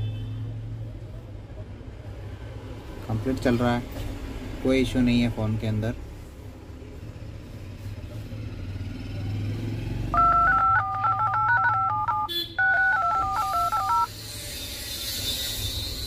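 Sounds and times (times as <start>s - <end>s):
dual-tone keypad beeps: 10.2s - 14.1s.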